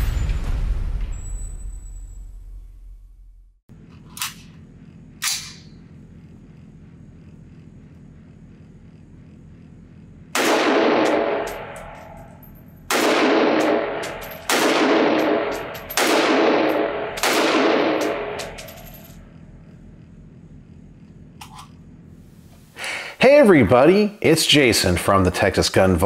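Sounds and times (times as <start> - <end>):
rifle shots with ringing echo: 10.3 - 19.1.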